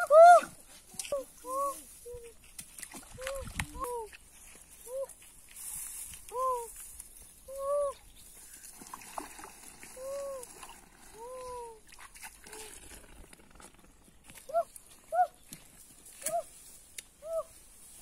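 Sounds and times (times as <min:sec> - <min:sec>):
faint trickling water: 0:07.9 - 0:13.4.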